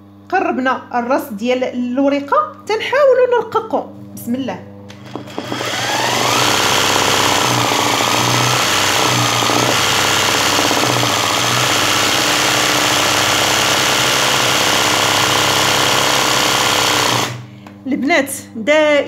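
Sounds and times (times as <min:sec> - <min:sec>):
sewing machine running fast: 0:05.0 - 0:17.4.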